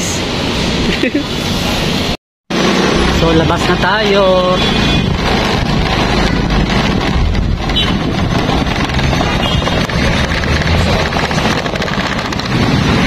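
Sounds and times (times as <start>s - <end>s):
street traffic: 0.0s - 13.0s
wind buffeting microphone: 4.8s - 13.0s.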